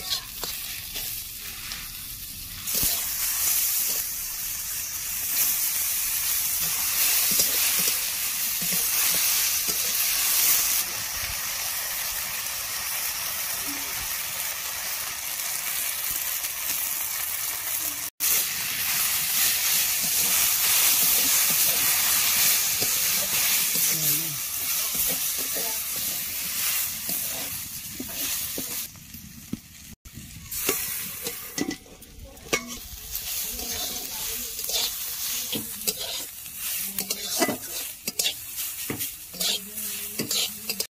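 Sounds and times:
metal spatula scraping a wok: 0.0 - 4.2, 4.8 - 10.8, 18.2 - 28.9, 30.5 - 40.9
mushrooms sizzling in hot oil: 0.0 - 40.9.

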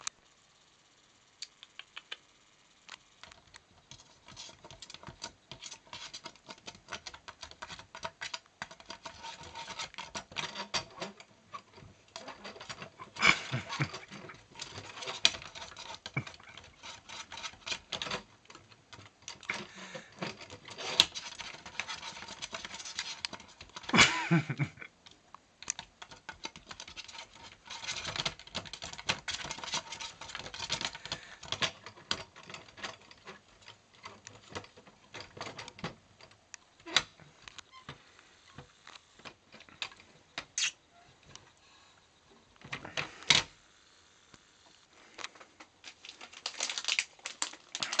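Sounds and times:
plastic cat flap clicking and rattling: 3.2 - 24.0, 25.0 - 37.8.

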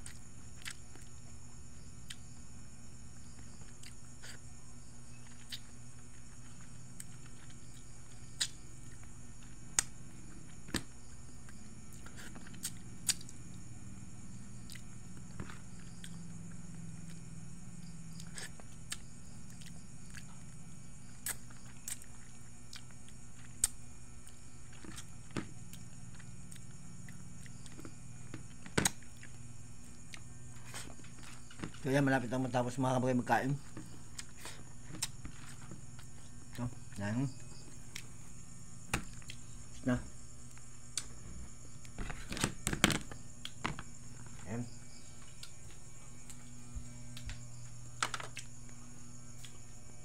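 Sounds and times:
person chewing food: 0.0 - 1.2, 2.0 - 2.4, 3.2 - 4.4, 5.2 - 10.8, 14.6 - 17.3, 18.1 - 31.8, 33.6 - 39.8, 45.0 - 47.7, 49.4 - 49.7
insect chirring: 0.0 - 50.0.

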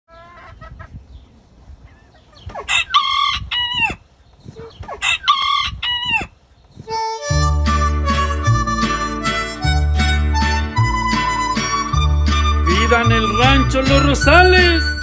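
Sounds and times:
chicken clucks: 0.1 - 7.0.

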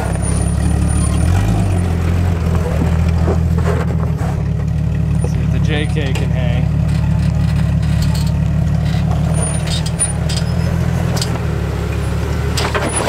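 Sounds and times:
engine running at low crawl: 0.0 - 13.0.

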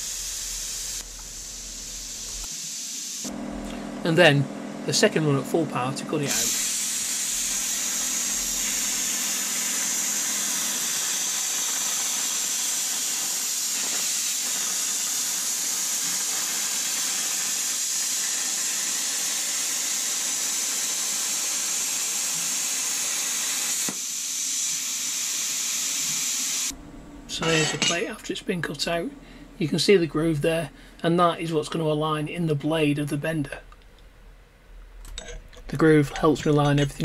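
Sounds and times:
plasma cutter hissing: 0.0 - 3.3, 6.2 - 26.7.

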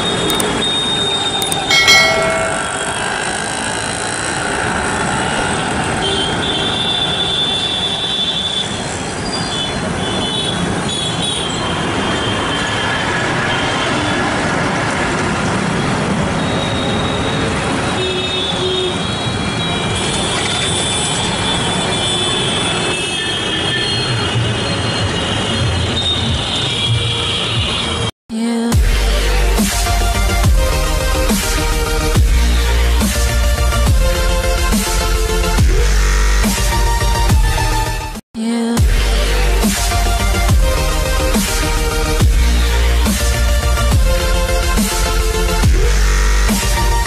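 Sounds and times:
busy street traffic: 0.0 - 47.0
high thin tones: 1.4 - 3.3.

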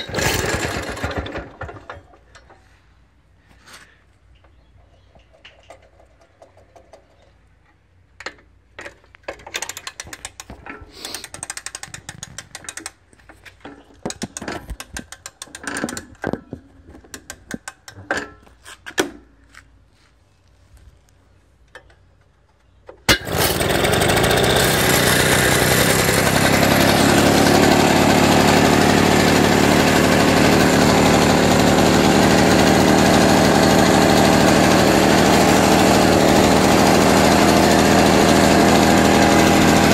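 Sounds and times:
two-stroke engine running: 0.0 - 1.9, 23.1 - 39.9
lawn mower clicks and rattles: 0.0 - 2.6, 4.4 - 19.2, 21.6 - 39.9.

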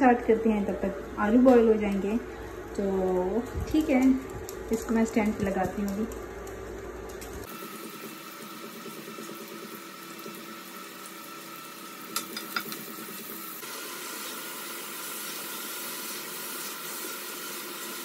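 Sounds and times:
onions sizzling in oil: 7.4 - 18.0
spoon clicking against pot: 12.2 - 12.8.

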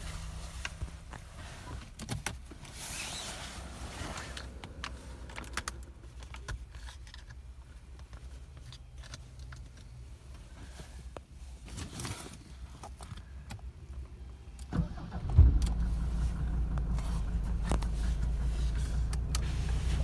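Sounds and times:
diesel engine idling: 14.8 - 20.0.

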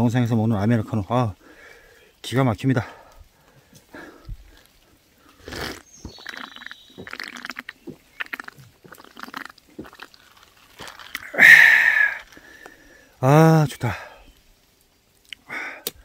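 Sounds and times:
breathy exhale: 1.4 - 2.1, 11.2 - 13.2, 15.4 - 16.0
sipping and swallowing: 4.5 - 12.7.

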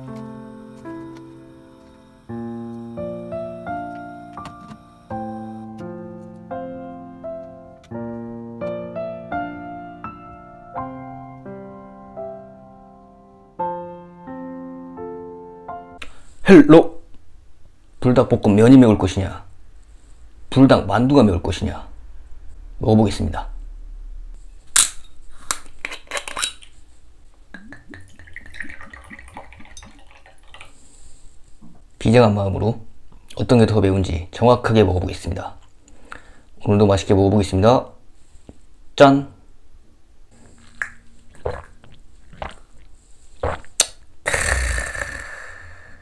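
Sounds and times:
metal screw cap cracking open: 24.8 - 26.8
man swallowing: 27.5 - 28.2, 40.4 - 46.0
liquid glugging into glass: 27.6 - 30.8, 40.6 - 44.0
man exhaling breathily: 44.2 - 46.0.

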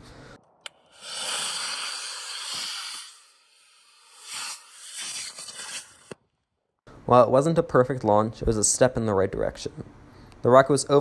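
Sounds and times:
rocket motor hissing: 0.7 - 6.2.

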